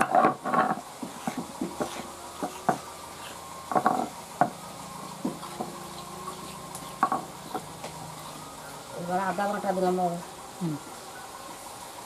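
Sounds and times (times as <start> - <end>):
stone roller grinding on stone: 0.0 - 4.6
stone knocking on stone: 3.7 - 4.5, 7.0 - 7.6.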